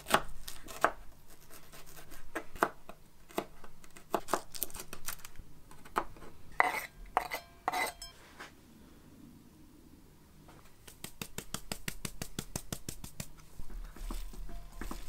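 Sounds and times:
glass bowl ringing: 0:07.4 - 0:08.2
knife chopping on wooden board: 0:11.0 - 0:15.0.

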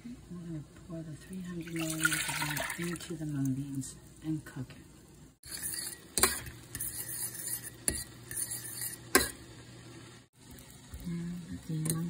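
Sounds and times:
fork scraping thick mash: 0:05.4 - 0:09.4.

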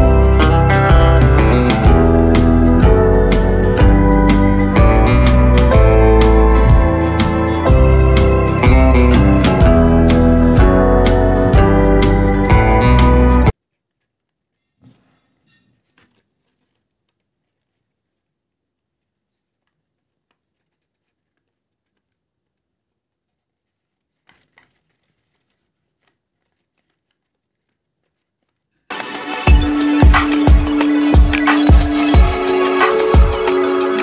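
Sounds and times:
electronic music with heavy bass: 0:00.0 - 0:13.5, 0:28.9 - 0:34.0
faint paper rustling: 0:13.5 - 0:29.0.

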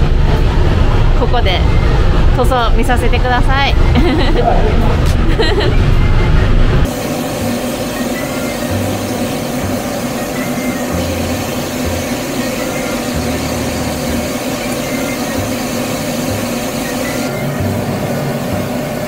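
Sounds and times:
constant hum: 0:00.0 - 0:19.0
spray gun hissing: 0:06.8 - 0:19.0.

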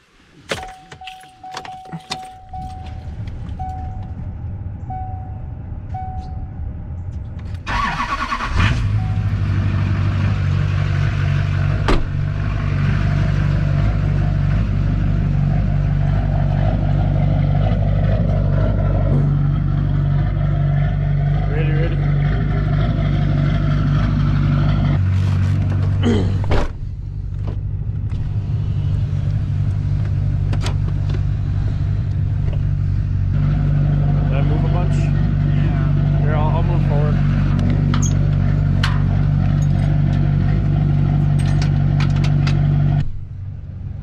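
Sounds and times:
truck warning chime: 0:00.5 - 0:04.1, 0:04.9 - 0:06.7.

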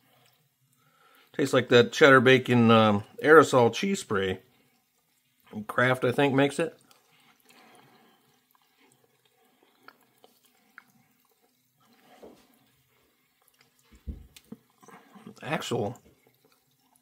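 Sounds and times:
quiet chewing: 0:00.0 - 0:01.3, 0:04.5 - 0:05.6, 0:06.7 - 0:17.0
wet mouth clicks: 0:08.5 - 0:11.6.

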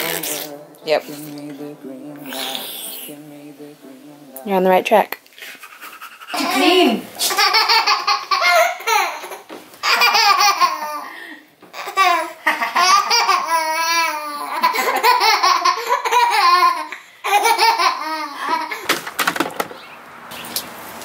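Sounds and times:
baby laughing: 0:05.5 - 0:19.0.

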